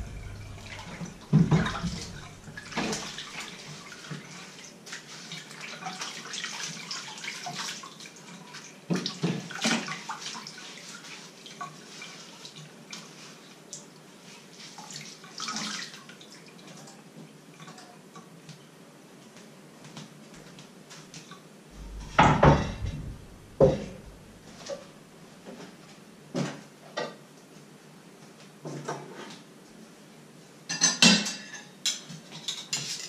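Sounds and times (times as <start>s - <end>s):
sharp knocks: 0.0s - 3.2s, 21.7s - 24.4s
water splashing in a sink: 0.0s - 12.6s, 14.6s - 16.4s, 21.8s - 24.8s.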